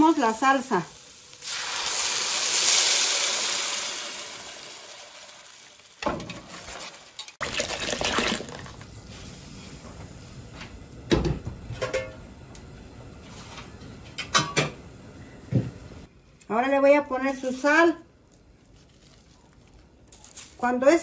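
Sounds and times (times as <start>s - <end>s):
sauce sizzling in hot oil: 0.0s - 6.0s
sauce splashing into pot: 1.3s - 5.5s.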